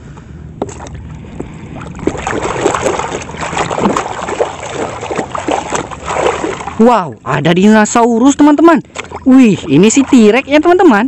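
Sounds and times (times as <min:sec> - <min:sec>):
water sloshing and splashing: 0:00.6 - 0:07.5, 0:08.8 - 0:11.0.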